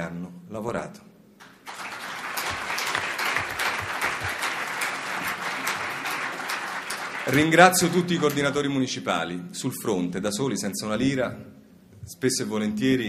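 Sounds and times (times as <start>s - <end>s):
audience applause in a hall: 1.4s - 8.6s.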